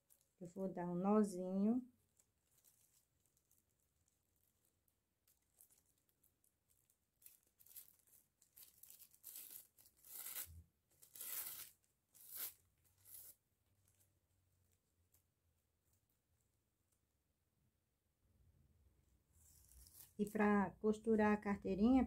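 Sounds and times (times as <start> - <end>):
plastic bag crinkling: 0.0 - 0.5, 1.8 - 16.1, 19.4 - 20.4.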